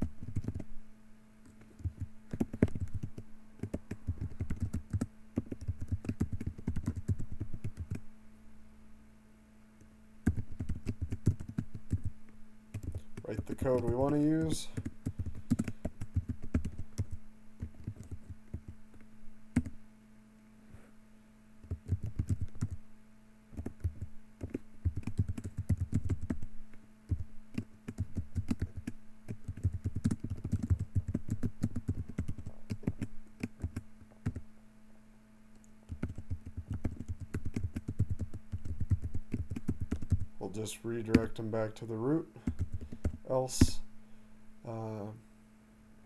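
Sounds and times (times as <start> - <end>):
computer keyboard typing: 0.0 - 0.7, 1.5 - 8.0, 10.2 - 12.1, 12.7 - 18.8, 19.5 - 19.8, 21.6 - 22.8, 23.6 - 26.4, 27.1 - 34.4, 35.9 - 40.3, 42.4 - 43.7
low steady hum: 0.0 - 46.0.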